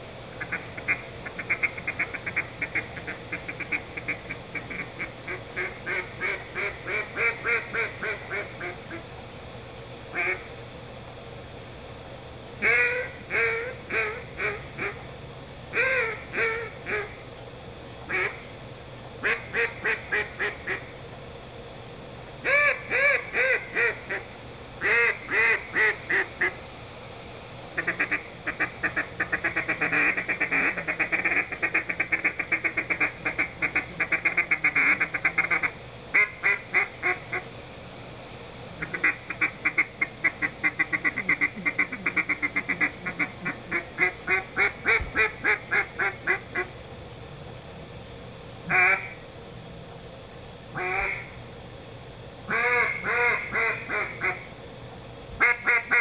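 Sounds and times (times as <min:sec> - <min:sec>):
duck call quacks: 0:00.4 - 0:09.0, 0:10.2 - 0:10.5, 0:12.6 - 0:15.0, 0:15.8 - 0:17.1, 0:18.1 - 0:18.4, 0:19.2 - 0:20.8, 0:22.4 - 0:26.6, 0:27.8 - 0:37.4, 0:38.8 - 0:46.7, 0:48.7 - 0:49.2, 0:50.8 - 0:51.3, 0:52.5 - 0:54.5, 0:55.4 - 0:56.0.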